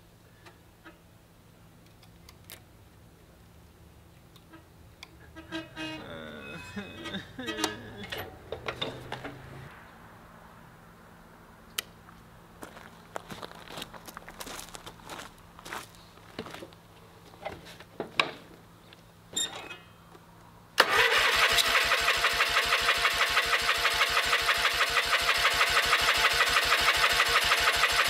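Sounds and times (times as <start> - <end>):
engine starting and running: 5.8 - 9.8, 20.8 - 28.0
clicks and knocks: 7.0 - 9.6
footsteps: 12.1 - 17.9.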